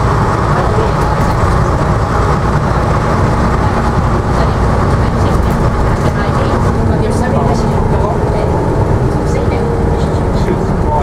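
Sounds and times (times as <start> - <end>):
bus diesel engine rumbling: 0.0 - 11.0
road and body noise: 0.0 - 11.0.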